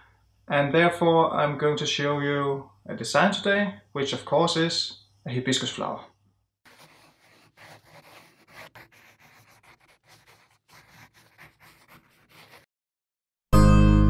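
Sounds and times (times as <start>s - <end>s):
pen scratching on paper: 6.7s - 12.7s.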